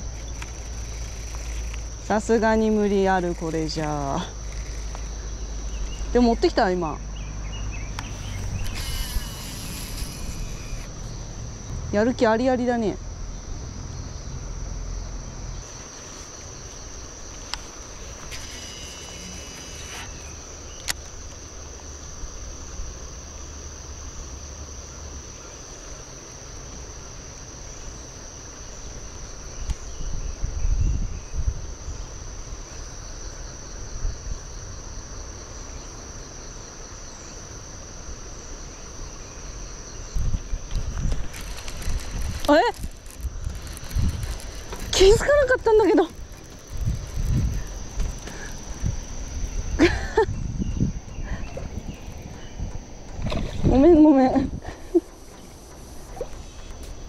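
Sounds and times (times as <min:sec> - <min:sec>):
insects droning: 0:00.0 - 0:57.0
low rumbles: 0:07.0 - 0:15.6.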